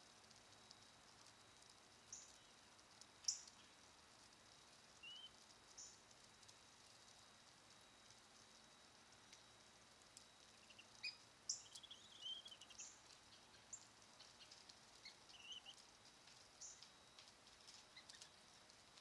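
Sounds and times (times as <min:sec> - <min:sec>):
ducklings peeping: 0:10.6 - 0:12.9, 0:15.0 - 0:15.8.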